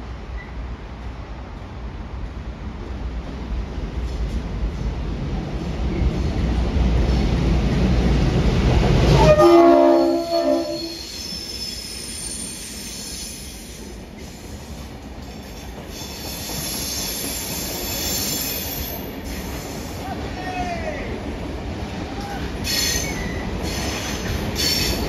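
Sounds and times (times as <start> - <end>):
diesel locomotive engine rumble: 0.0 - 25.0
multi-tone train horn blast: 9.1 - 11.0
train wheel squeal: 9.2 - 20.0, 22.2 - 25.0.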